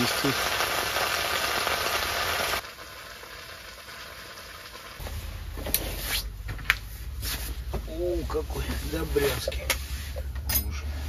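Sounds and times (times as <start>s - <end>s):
potatoes sizzling in a pan: 0.0s - 5.0s.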